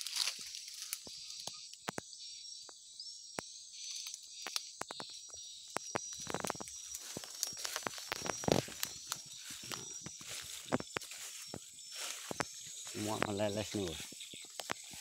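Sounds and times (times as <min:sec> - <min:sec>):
footsteps through dry undergrowth: 0:00.0 - 0:01.4, 0:06.1 - 0:15.0
insects chorus: 0:00.0 - 0:15.0.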